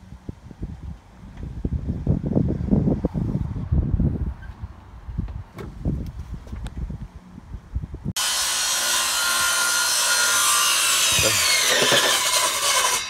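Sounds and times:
power tool running: 8.2 - 13.0.

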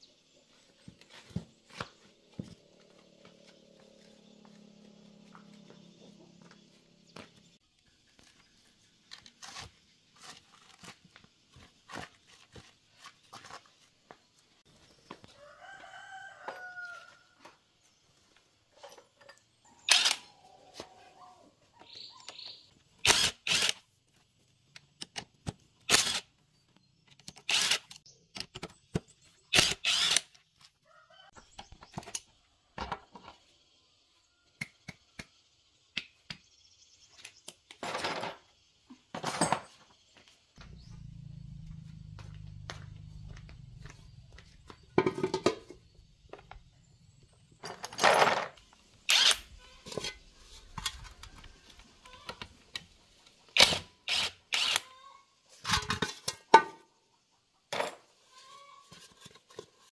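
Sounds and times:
rooster crowing: 15.3 - 17.5.

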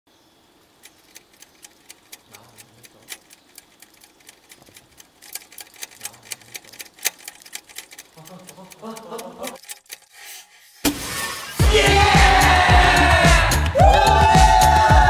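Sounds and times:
rapid sharp ticking clicks: 0.6 - 10.2.

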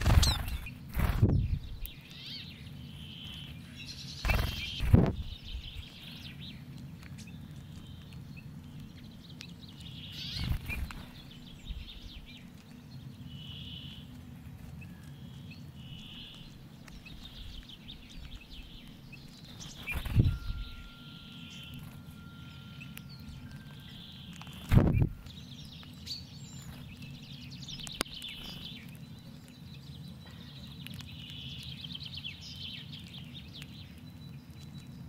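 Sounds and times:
finches calling: 0.0 - 6.6, 10.0 - 12.4, 15.2 - 29.0
steady low hum: 0.0 - 35.0.

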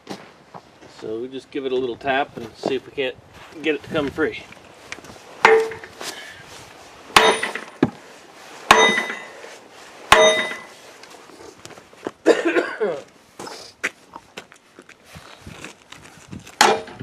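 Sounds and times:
sledgehammer clanging on metal: 5.4 - 6.0, 7.2 - 8.0, 8.7 - 9.4, 10.1 - 10.8, 16.6 - 17.0.

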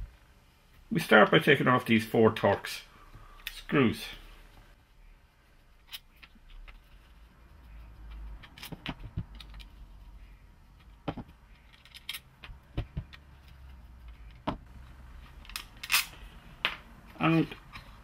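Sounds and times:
metallic clicks and clinks of screws: 11.6 - 12.3.

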